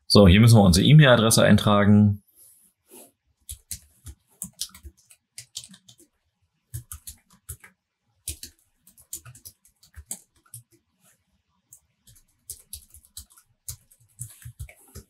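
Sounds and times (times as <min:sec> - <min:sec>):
typing on computer keyboard: 0:03.4 - 0:06.1, 0:06.7 - 0:10.8, 0:11.7 - 0:15.0.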